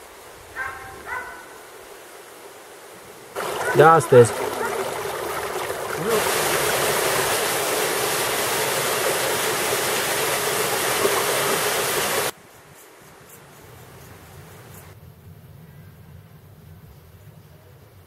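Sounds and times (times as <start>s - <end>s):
waterfall rushing into pool: 3.3s - 12.4s.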